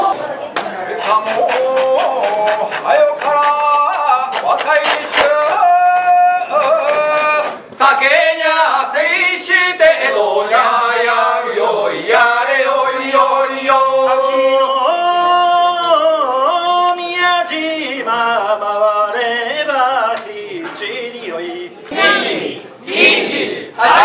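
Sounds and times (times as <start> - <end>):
men chanting in unison: 1.0 - 19.0.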